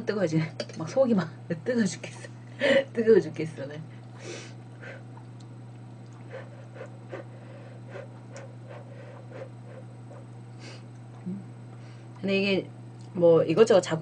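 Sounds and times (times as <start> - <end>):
low hum: 0.0 - 14.0
soft chewing: 4.0 - 12.3.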